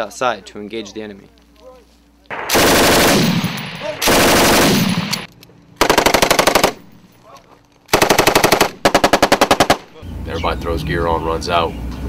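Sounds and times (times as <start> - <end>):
automatic gunfire bursts: 2.3 - 7.0, 7.9 - 10.0.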